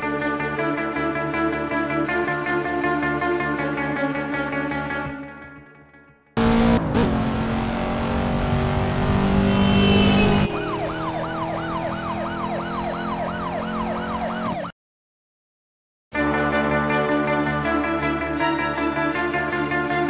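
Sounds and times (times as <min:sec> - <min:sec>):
police siren yelping: 0:10.2 - 0:14.7.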